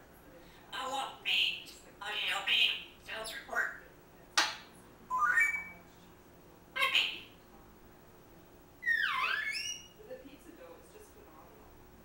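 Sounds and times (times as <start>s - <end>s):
parrot calls: 5.1s - 5.7s, 6.8s - 7.3s, 8.8s - 10.0s.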